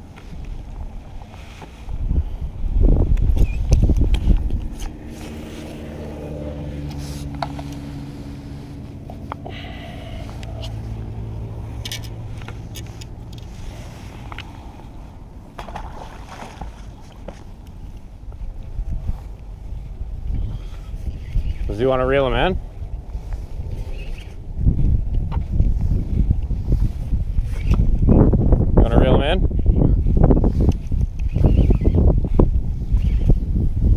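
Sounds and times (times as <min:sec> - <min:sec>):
low engine hum: 0:00.0 - 0:33.9
wind buffeting microphone: 0:00.0 - 0:33.9
hands handling fish and lure: 0:11.7 - 0:19.5.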